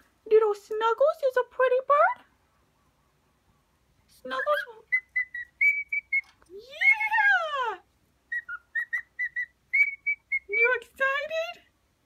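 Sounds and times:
cockatiel whistling: 0:04.4 - 0:06.3, 0:08.3 - 0:10.5.

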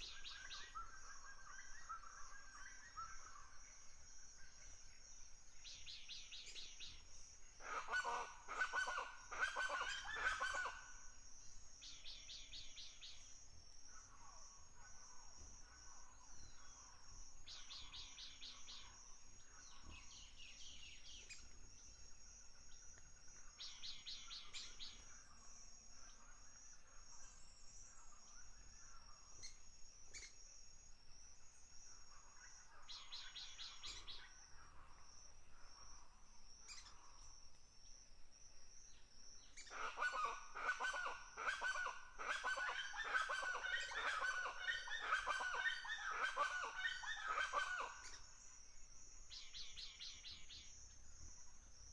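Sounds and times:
dense chorus of bird calls: 0:00.0 - 0:30.4, 0:31.7 - 0:35.0, 0:39.5 - 0:51.9
birds chirping and calling: 0:07.8 - 0:10.8, 0:39.6 - 0:48.2.

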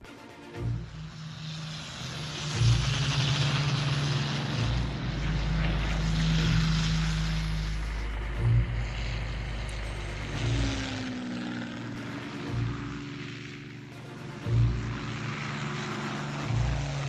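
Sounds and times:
propeller aircraft engine running: 0:00.0 - 0:17.0.

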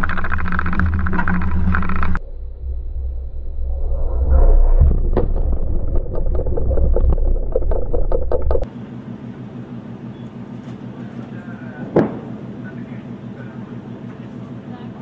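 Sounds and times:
crackling debris ticks: 0:00.0 - 0:02.2
heavy rumble: 0:00.0 - 0:08.7
low hum: 0:00.0 - 0:10.3
deep explosion blast: 0:02.2 - 0:08.3.

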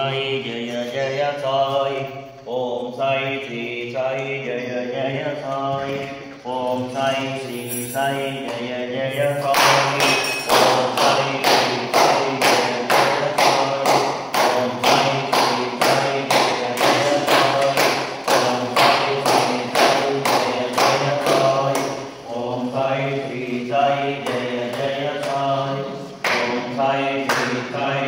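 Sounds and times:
sharp percussion beat: 0:09.1 - 0:22.6.

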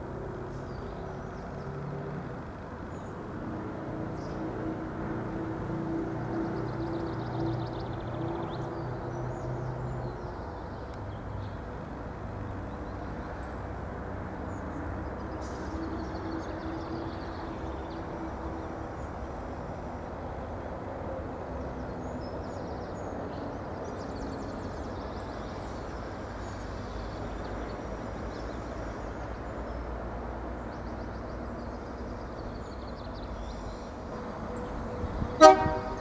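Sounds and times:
birds chirping: 0:30.7 - 0:36.0
diesel train rumbling: 0:32.1 - 0:36.0.

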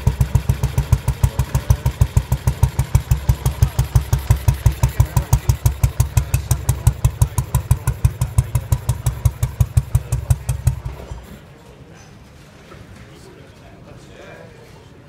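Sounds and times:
motorcycle engine idling: 0:00.0 - 0:11.5.

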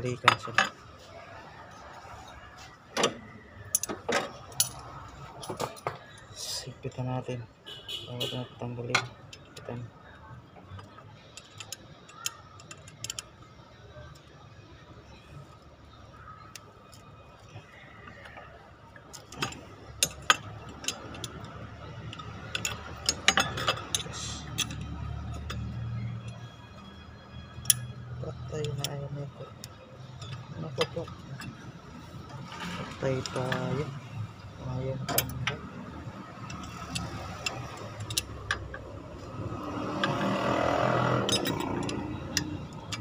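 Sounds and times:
background noise: 0:00.0 - 0:43.0
ratchet wrench clicking: 0:20.0 - 0:26.5, 0:34.3 - 0:43.0.

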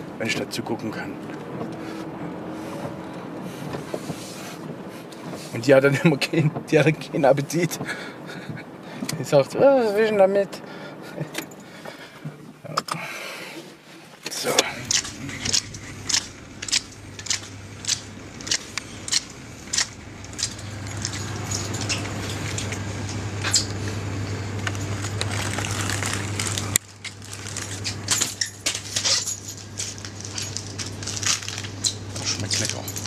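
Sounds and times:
steady low hum: 0:00.0 - 0:33.0
even rustling: 0:13.6 - 0:33.0.

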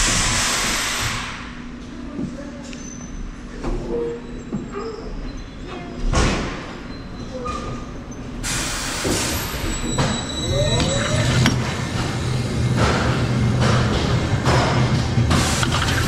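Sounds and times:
loud hiss of air: 0:00.0 - 0:01.6, 0:08.4 - 0:09.7
roller coaster rolling hum: 0:09.4 - 0:16.0
short squeaks: 0:09.5 - 0:11.8.

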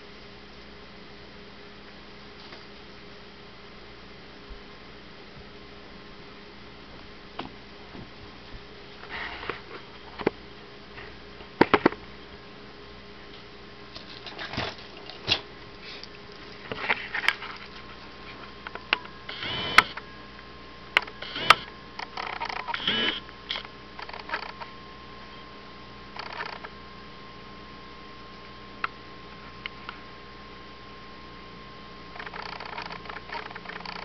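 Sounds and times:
cat chewing wetly: 0:14.3 - 0:18.0
sharp clicks: 0:18.7 - 0:20.0, 0:21.0 - 0:24.7, 0:32.2 - 0:34.0.

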